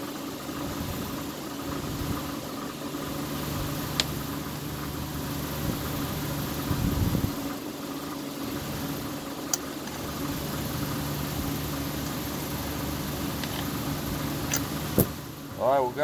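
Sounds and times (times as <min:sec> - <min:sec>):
low mechanical hum: 0:00.0 - 0:16.0
sharp click: 0:14.5 - 0:15.1.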